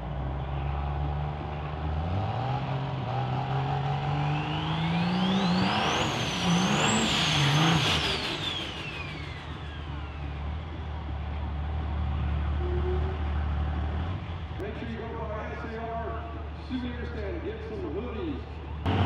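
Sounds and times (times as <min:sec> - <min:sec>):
diesel truck accelerating hard: 0:00.0 - 0:15.4, 0:18.4 - 0:19.0
high turbo whistle: 0:04.1 - 0:10.4.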